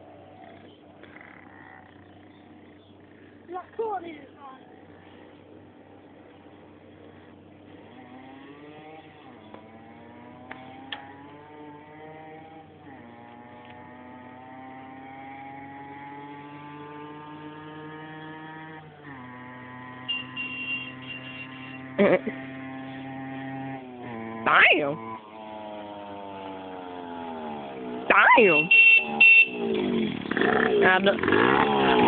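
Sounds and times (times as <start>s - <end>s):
two-stroke engine accelerating: 0.0s - 32.0s.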